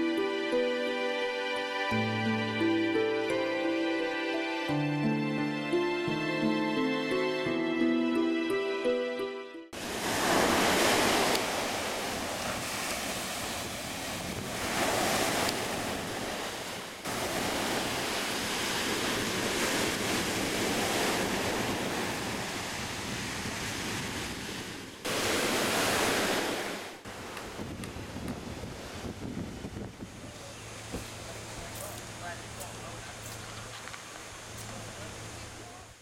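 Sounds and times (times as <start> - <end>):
wind on microphone: 9.8 - 31.8
surf washing onto sand: 9.8 - 35.8.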